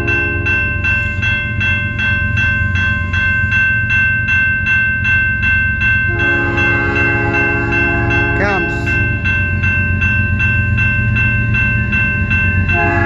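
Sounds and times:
crossing warning bell ringing: 0:00.0 - 0:13.0
locomotive horn: 0:06.1 - 0:08.9, 0:12.7 - 0:13.0.

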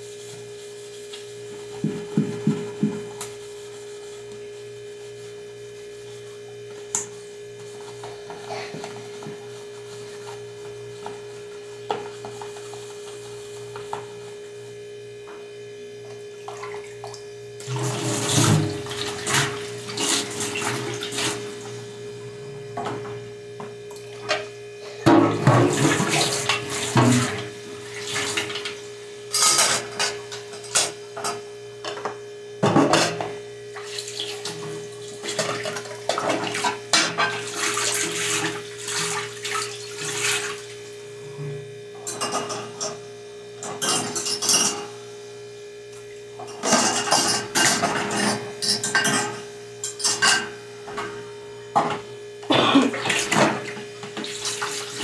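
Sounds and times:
electrical hum: 0:00.0 - 0:55.0
tap water running and splashing: 0:16.1 - 0:21.8, 0:25.2 - 0:28.8, 0:33.8 - 0:40.9, 0:52.6 - 0:55.0.

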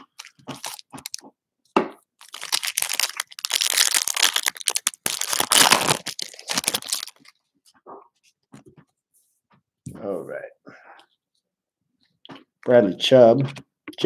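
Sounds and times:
foil wrapper tearing and crinkling: 0:00.1 - 0:01.2, 0:02.2 - 0:07.3.

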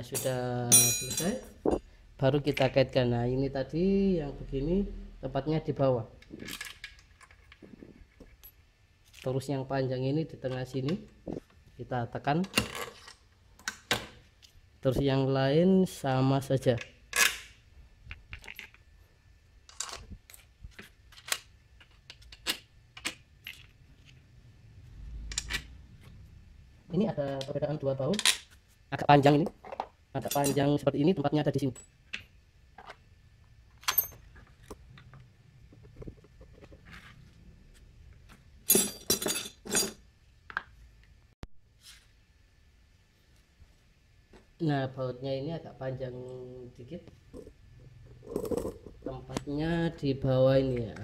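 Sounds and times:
small steel bolts clinking: 0:00.0 - 0:01.5, 0:33.8 - 0:34.7, 0:38.6 - 0:40.0
metal parts clinking and rattling: 0:00.0 - 0:01.6, 0:18.3 - 0:18.9, 0:19.7 - 0:24.1, 0:33.8 - 0:34.8, 0:38.6 - 0:40.0.

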